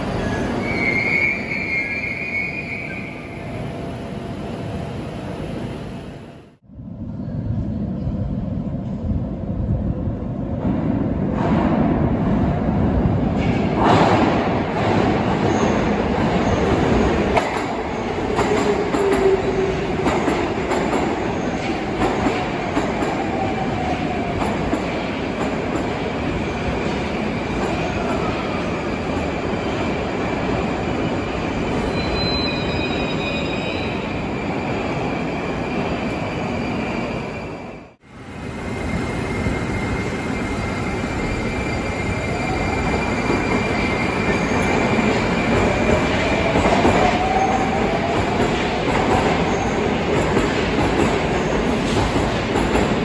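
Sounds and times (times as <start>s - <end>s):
train brake squeal: 0.2s - 3.4s, 31.8s - 34.1s.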